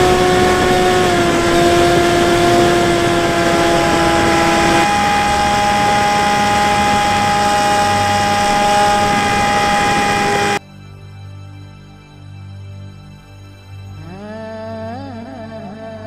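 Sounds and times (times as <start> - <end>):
electric motor whine: 0.0 - 10.6
rushing wind: 0.0 - 10.6.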